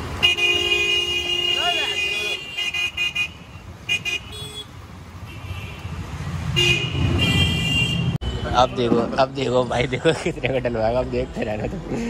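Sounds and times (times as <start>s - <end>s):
vehicle horns tooting: 0.0s - 9.1s
road noise: 0.0s - 12.0s.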